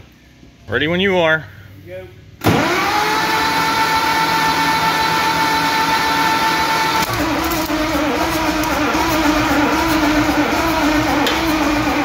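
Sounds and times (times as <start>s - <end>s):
starter motor cranking: 2.4s - 12.0s.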